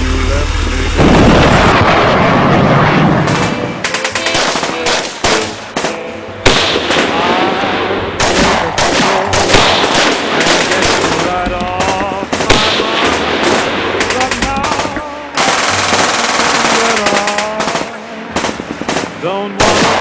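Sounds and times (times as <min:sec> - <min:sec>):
loud bang: 0:00.0 - 0:20.0
single gunshots: 0:01.0 - 0:07.4, 0:08.2 - 0:20.0
machine-gun bursts: 0:03.3 - 0:07.3, 0:08.2 - 0:20.0.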